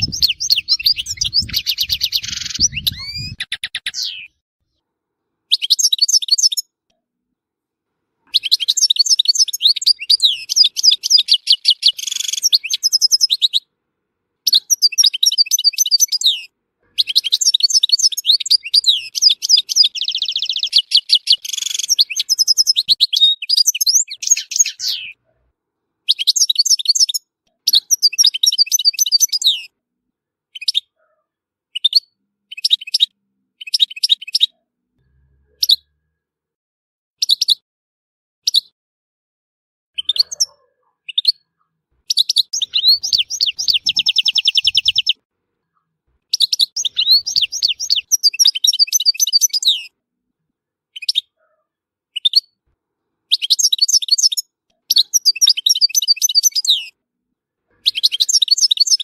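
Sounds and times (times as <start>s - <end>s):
goldfinch singing: 0.0s - 4.3s, 5.5s - 6.6s, 8.3s - 13.6s, 14.5s - 25.2s, 42.1s - 45.2s, 46.3s - 49.9s, 53.3s - 56.9s, 57.8s - 59.0s.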